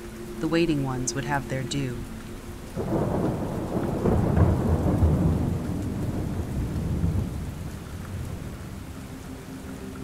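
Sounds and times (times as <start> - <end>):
steady rain: 0.0 - 10.0
rolling thunder: 2.8 - 8.9.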